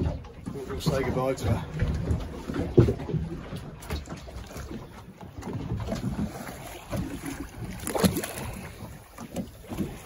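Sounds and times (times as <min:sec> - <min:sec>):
water slapping boat hull: 0:00.0 - 0:10.0
splash in water: 0:05.6 - 0:10.0.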